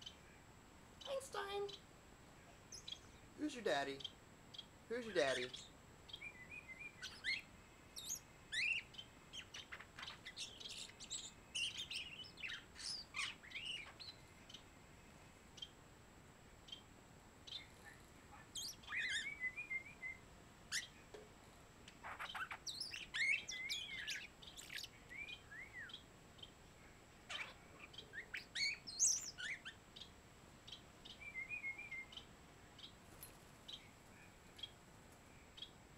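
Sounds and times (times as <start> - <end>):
starling singing: 4.9 - 14.2, 18.3 - 20.9, 22.0 - 26.0, 27.3 - 30.1.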